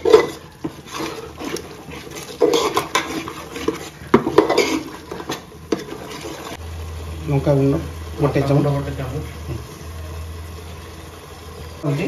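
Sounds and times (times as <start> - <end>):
wooden spatula scraping pot: 0.0 - 6.6.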